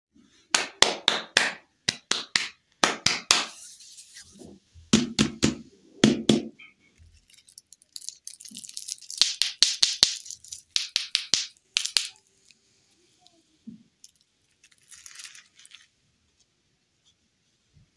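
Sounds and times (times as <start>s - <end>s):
hands tapping and patting: 0.5s - 3.5s, 8.5s - 12.2s.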